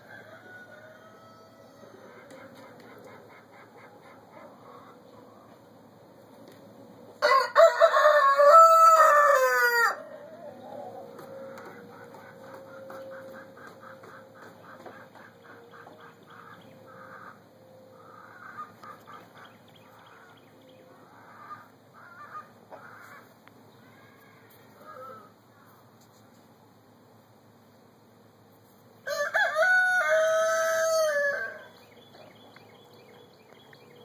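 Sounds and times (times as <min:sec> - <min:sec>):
chickens clucking: 0:00.8 - 0:06.6, 0:10.1 - 0:23.4.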